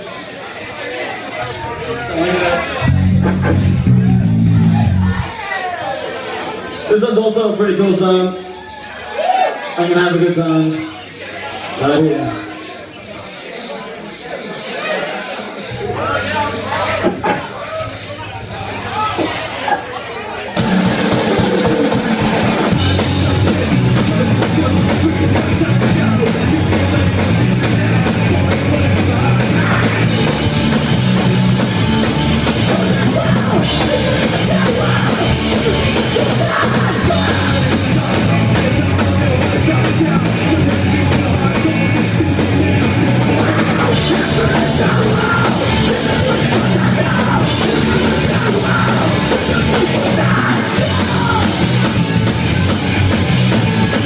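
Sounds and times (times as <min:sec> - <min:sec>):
bass guitar: 0:01.2 - 0:06.9, 0:15.6 - 0:54.0
live rock band playing: 0:01.3 - 0:13.0, 0:20.2 - 0:54.0
pounding drum kit: 0:02.2 - 0:05.4, 0:20.5 - 0:54.0.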